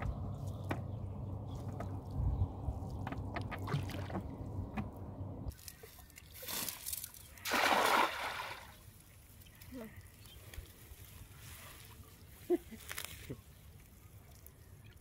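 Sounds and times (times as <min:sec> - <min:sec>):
low rumble: 0:00.0 - 0:05.5.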